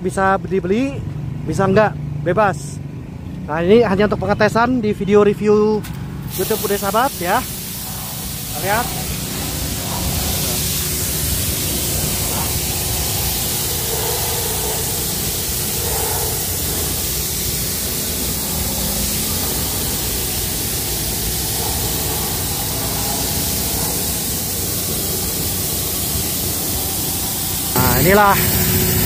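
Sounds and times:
water jets hissing: 0:06.3 - 0:29.0
petrol engine humming: 0:07.4 - 0:29.0.

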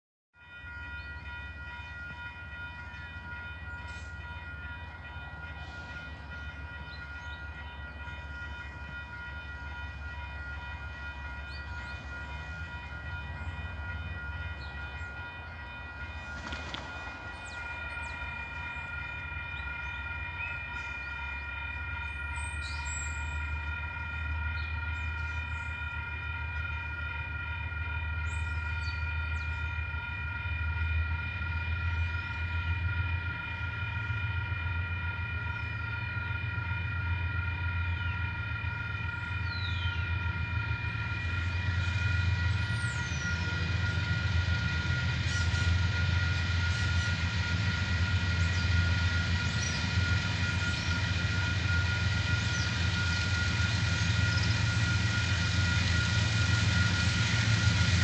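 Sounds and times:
diesel locomotive rumble: 0:00.5 - 0:58.0
steady whine: 0:00.5 - 0:58.0.

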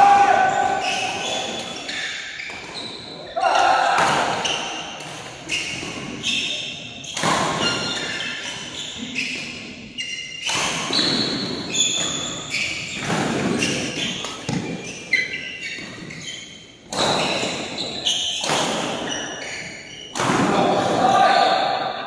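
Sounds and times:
shoes squeaking on court: 0:00.4 - 0:03.3, 0:05.4 - 0:20.2
racket striking shuttlecock: 0:18.4 - 0:19.2.

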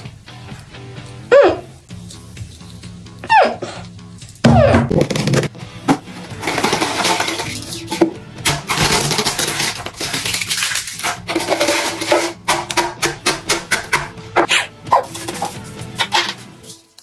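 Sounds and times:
background music: 0:00.0 - 0:17.0
crisps crunching and crackling: 0:08.6 - 0:12.0.

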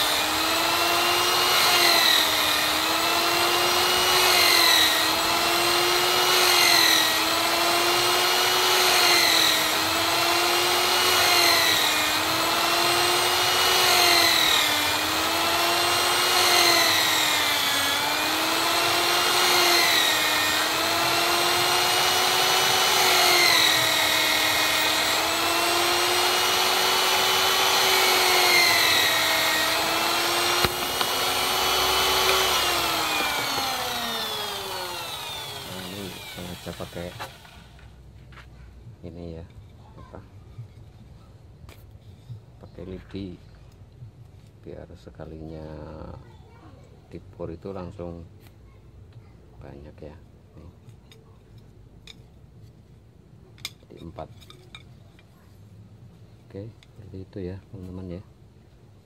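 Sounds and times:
electric drill boring into wood: 0:00.0 - 0:37.8.

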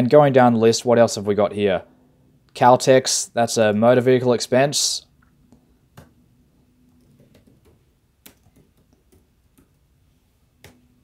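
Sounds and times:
keyboard keys clicking: 0:06.9 - 0:09.8.

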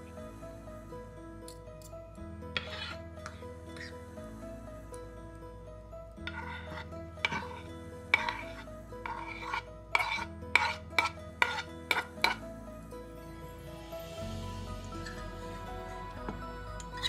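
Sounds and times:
soft background music: 0:00.0 - 0:17.0
fork scraping a cutting board: 0:02.6 - 0:03.9, 0:06.2 - 0:12.4.

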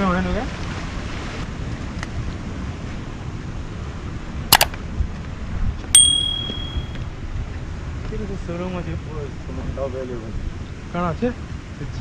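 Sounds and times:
bright ringing ding: 0:06.0 - 0:07.0.

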